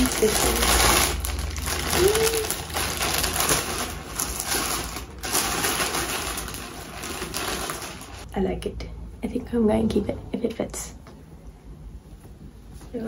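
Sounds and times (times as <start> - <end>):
plastic packaging crinkling: 0.0 - 8.3
person humming: 1.9 - 2.6.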